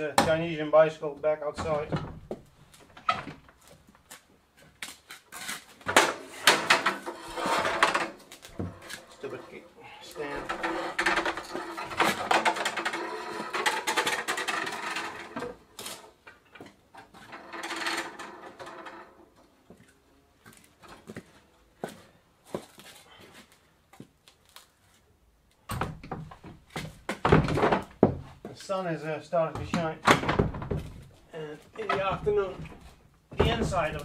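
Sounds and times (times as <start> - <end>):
wooden barn doors shutting: 1.5 - 3.4, 5.8 - 16.1, 17.2 - 19.2, 25.7 - 28.3, 29.6 - 31.1, 31.7 - 34.0
bicycle rattling on concrete: 9.8 - 15.4
footsteps in wooden clogs: 26.0 - 28.7, 29.6 - 34.0.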